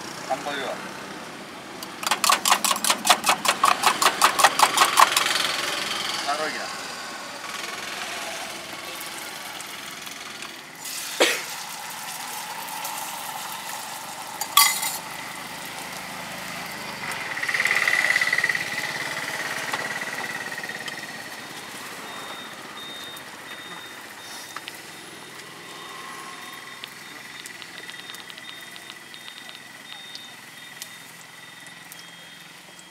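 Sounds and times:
omelette sizzling in oil: 0:08.8 - 0:17.1, 0:23.0 - 0:32.9.

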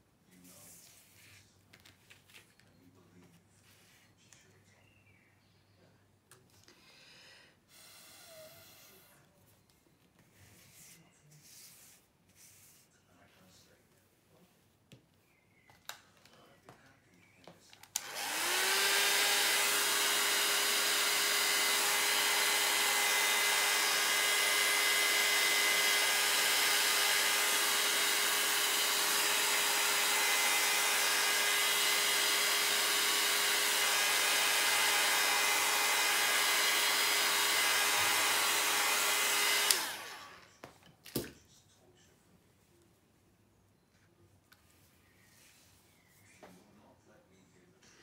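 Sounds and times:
hair dryer motor blowing: 0:17.9 - 0:40.5.

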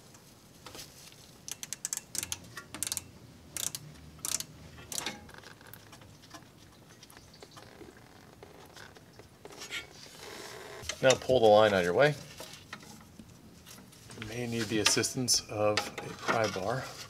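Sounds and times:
ratchet clicking: 0:01.5 - 0:05.2.

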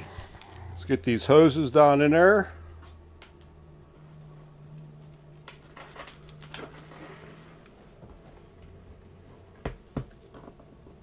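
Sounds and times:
faint low hum: 0:00.0 - 0:11.0
hoses rustling and clicking: 0:05.1 - 0:07.8.

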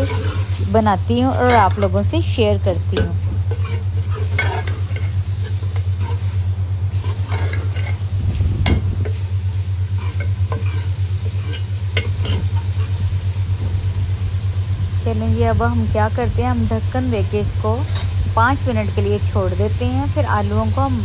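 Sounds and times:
metal ladle scraping a pot: 0:00.0 - 0:02.0, 0:02.9 - 0:13.1, 0:17.8 - 0:18.2
steady low hum: 0:00.0 - 0:21.0
vegetables sizzling: 0:00.0 - 0:21.0.

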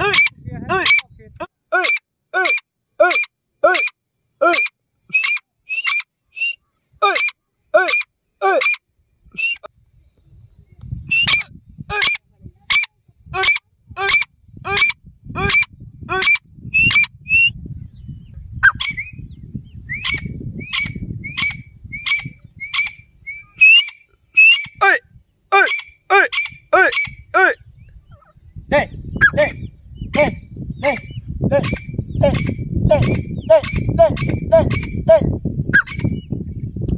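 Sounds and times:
francolin calling sharp notes: 0:01.7 - 0:08.8, 0:20.0 - 0:27.6.

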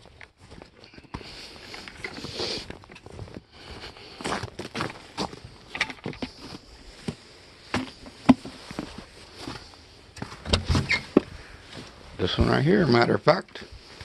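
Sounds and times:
footsteps in snow: 0:00.0 - 0:05.6, 0:06.3 - 0:11.0
handling noises: 0:00.0 - 0:14.0
knocks and clunks: 0:10.2 - 0:11.4.

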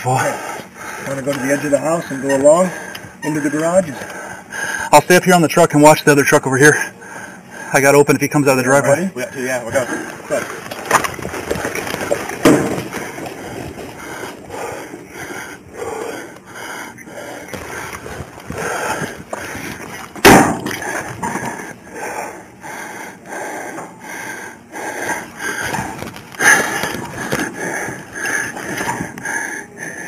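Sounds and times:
footsteps on pavement: 0:09.8 - 0:14.9, 0:17.2 - 0:21.6
clothing rustling against microphone: 0:09.8 - 0:16.5, 0:17.2 - 0:21.8, 0:25.0 - 0:29.4
sharp loud knock: 0:20.2 - 0:20.8.

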